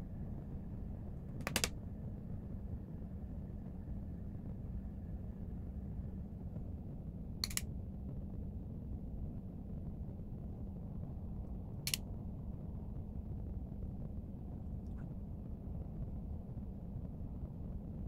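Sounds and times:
low background hum: 0:00.0 - 0:18.0
sharp clicks: 0:01.4 - 0:01.7, 0:07.4 - 0:07.7, 0:11.9 - 0:12.1.

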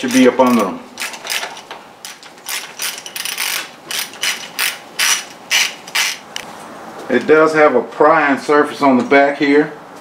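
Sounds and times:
ratchet wrench clicking: 0:00.0 - 0:06.2.

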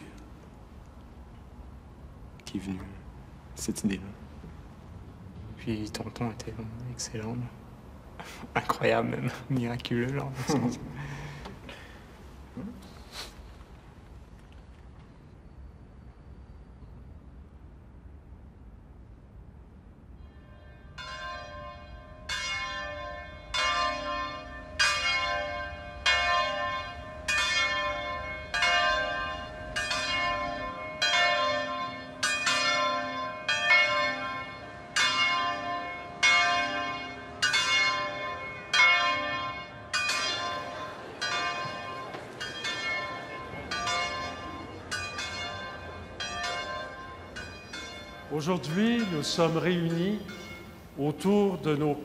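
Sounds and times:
church bells ringing: 0:20.1 - 0:52.0.

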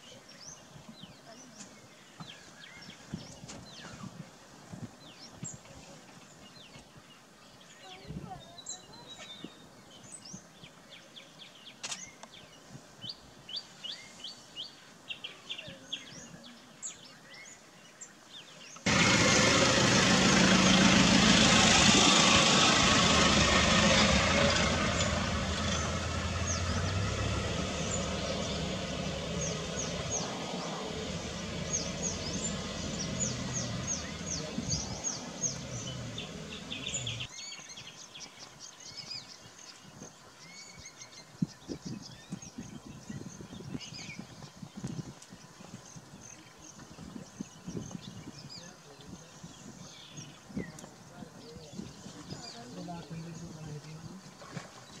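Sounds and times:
small birds chirping: 0:00.0 - 0:21.0, 0:21.6 - 0:55.0
rushing noise with low hum: 0:18.9 - 0:37.3.

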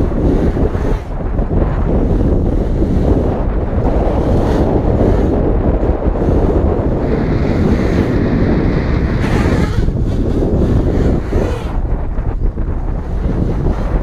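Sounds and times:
wind buffeting microphone: 0:00.0 - 0:14.0
quadcopter motors whining: 0:03.8 - 0:13.9.

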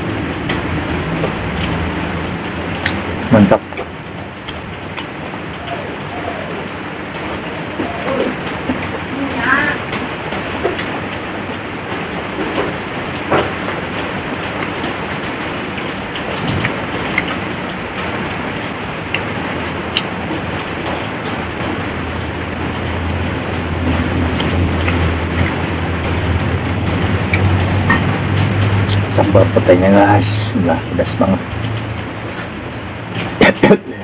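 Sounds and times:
man chewing and smacking: 0:02.7 - 0:05.7, 0:12.4 - 0:18.4, 0:19.0 - 0:21.8, 0:23.6 - 0:29.2.

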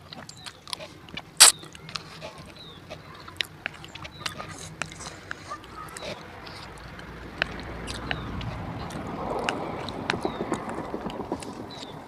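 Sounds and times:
wet mouth clicks: 0:00.2 - 0:02.1, 0:03.4 - 0:10.0.

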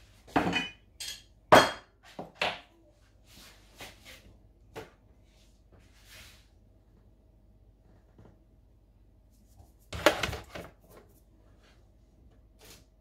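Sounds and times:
bowls knocking on stone countertop: 0:00.3 - 0:02.6.

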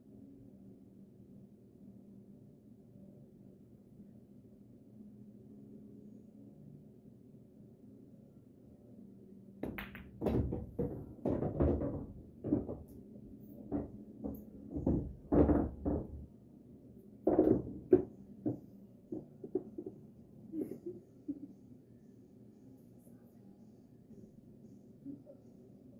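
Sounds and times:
cue striking ball: 0:09.6 - 0:12.9
sharp knocks and thunks: 0:09.6 - 0:12.9, 0:13.6 - 0:16.3
pool balls knocking together: 0:09.6 - 0:13.0, 0:13.6 - 0:16.3, 0:17.2 - 0:20.0.

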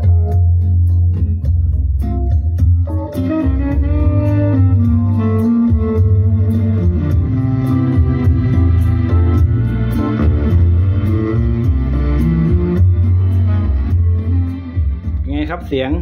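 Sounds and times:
loud guitar music over loudspeakers: 0:00.0 - 0:16.0.

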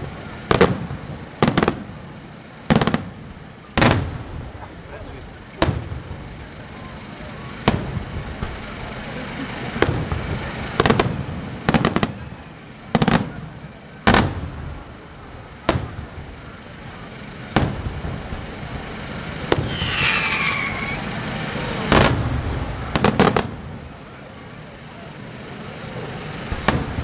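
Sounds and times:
continuous background rumble: 0:00.0 - 0:27.0
firework shells bursting: 0:17.5 - 0:21.2.

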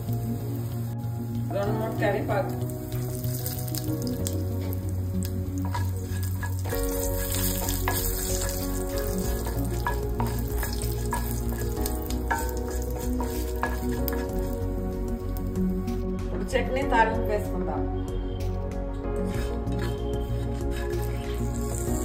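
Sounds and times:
spices sizzling in hot oil: 0:00.0 - 0:16.1, 0:18.4 - 0:22.0
spatula scraping a pan: 0:05.6 - 0:14.6, 0:19.2 - 0:22.0.

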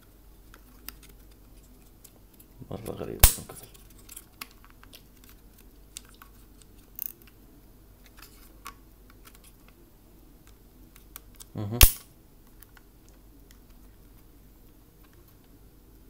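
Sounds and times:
loud sharp snap: 0:03.2 - 0:03.6, 0:11.8 - 0:12.1.

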